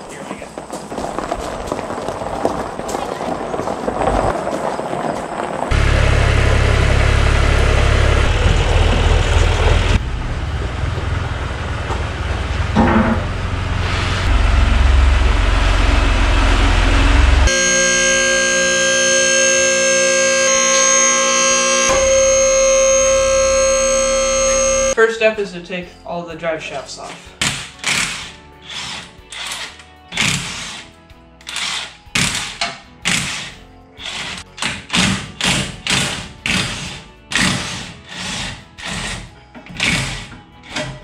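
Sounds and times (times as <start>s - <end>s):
low rumbling rush: 0.0s - 17.6s
electric motor humming: 14.3s - 25.0s.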